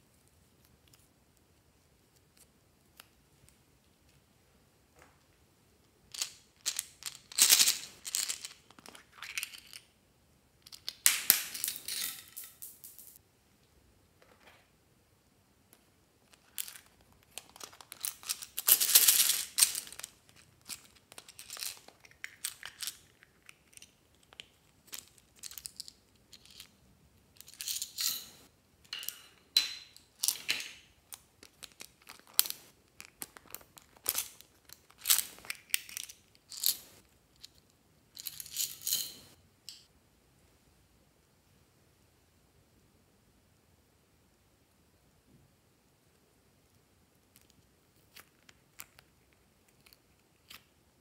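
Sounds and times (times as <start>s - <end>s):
small plastic pieces rattling: 6.1s - 9.8s, 16.4s - 26.7s.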